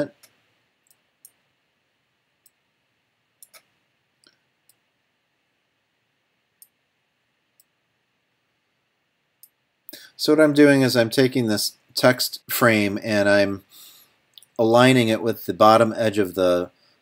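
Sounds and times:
computer mouse and keyboard clicks: 3.4s - 4.8s.

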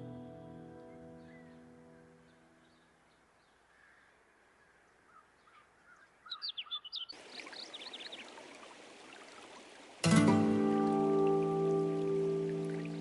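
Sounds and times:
songbirds chirping: 0.0s - 13.0s
steady outdoor hiss: 0.0s - 13.0s.

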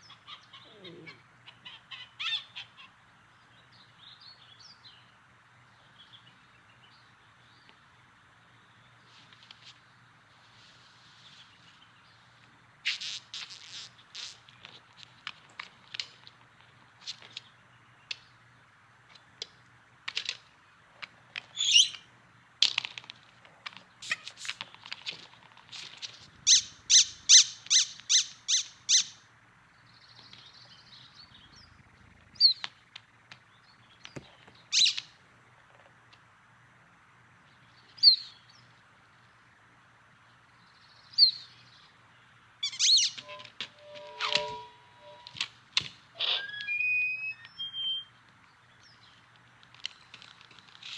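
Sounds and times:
high chirping squeaks: 12.9s - 14.5s, 21.5s - 22.0s, 26.3s - 29.1s, 34.7s - 35.0s, 42.6s - 45.4s, 46.2s - 48.1s.

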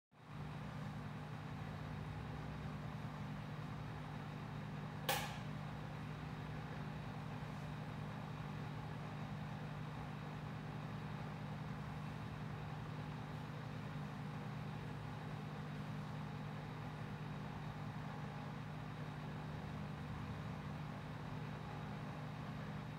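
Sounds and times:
short sharp click: 5.1s - 5.5s.

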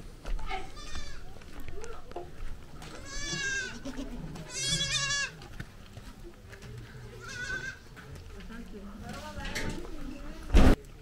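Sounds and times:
goat bleating: 0.6s - 1.3s, 2.8s - 5.4s, 7.2s - 7.8s.

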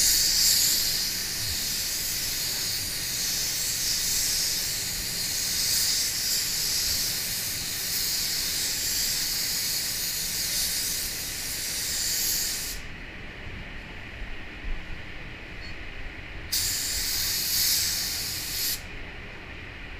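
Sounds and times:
paint spray gun hissing: 0.0s - 12.9s, 16.5s - 18.9s
spray booth air rumble: 0.0s - 19.9s.

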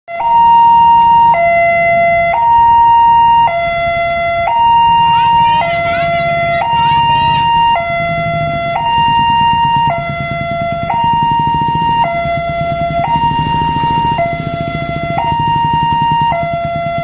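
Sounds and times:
two-tone crossing alarm: 0.1s - 17.0s
motorbike engine idling: 3.2s - 17.0s.

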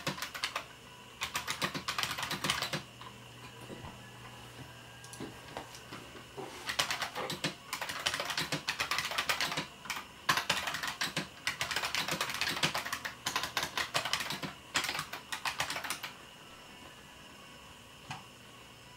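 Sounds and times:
fast typing on clicky keyboard: 0.0s - 0.6s, 1.2s - 2.8s, 6.7s - 16.1s.

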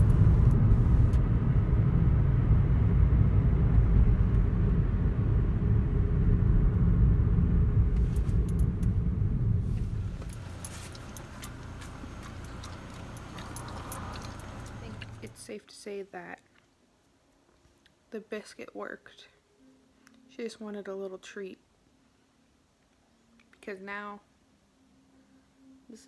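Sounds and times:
car cabin road rumble: 0.0s - 15.4s.

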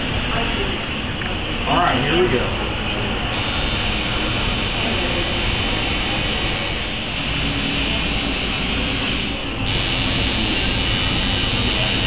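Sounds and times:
tattoo machine buzzing: 3.3s - 12.0s.

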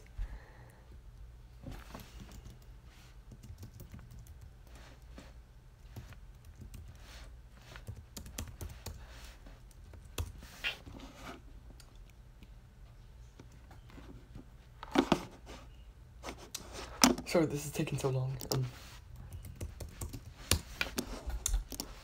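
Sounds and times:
computer keyboard typing: 2.2s - 2.7s, 3.3s - 4.6s, 5.9s - 7.0s, 7.8s - 9.0s, 9.7s - 10.4s, 19.2s - 22.0s.

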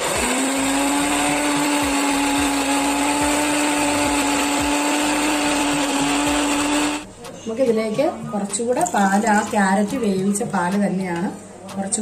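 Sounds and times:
mixer grinder running: 0.0s - 7.1s.

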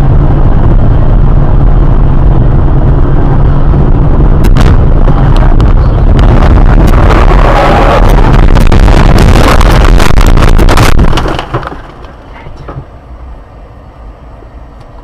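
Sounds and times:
low rumble: 0.0s - 15.0s
car crash crunching: 6.9s - 12.3s.

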